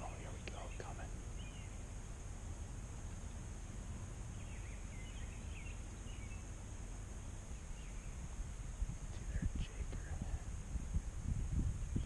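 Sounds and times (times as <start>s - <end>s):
distant bird chirps: 0.0s - 10.1s
wind rumble on microphone: 7.2s - 12.0s.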